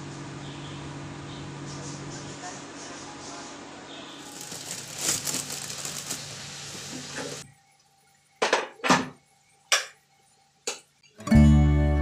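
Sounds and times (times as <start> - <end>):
plastic bag crinkling: 4.2 - 7.4.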